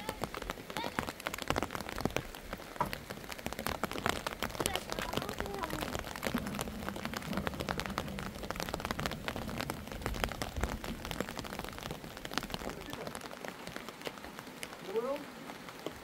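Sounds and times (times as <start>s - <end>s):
rain pattering: 0.0s - 16.0s
low rumble: 4.0s - 13.0s.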